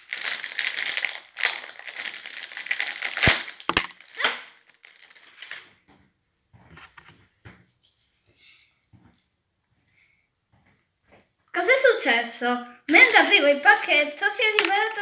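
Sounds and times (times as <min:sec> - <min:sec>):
foil packet crinkling and tearing: 0:00.0 - 0:05.8, 0:12.9 - 0:15.0.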